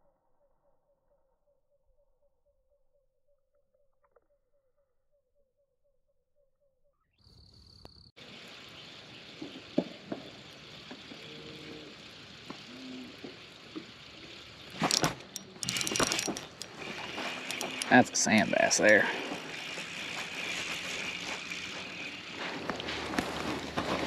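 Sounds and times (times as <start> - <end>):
lake ambience: 8.2 - 24.0
fishing reel cranking: 10.2 - 23.8.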